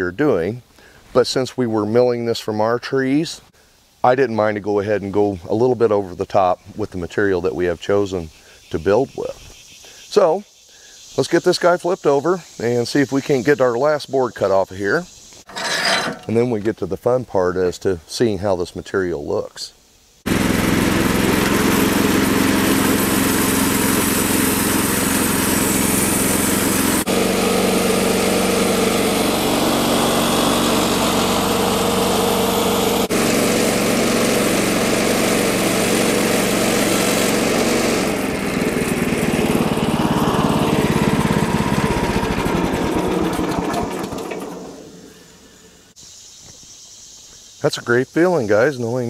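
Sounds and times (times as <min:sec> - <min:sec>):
bandsaw mill cutting wood: 0:15.5 - 0:16.4, 0:20.3 - 0:45.3.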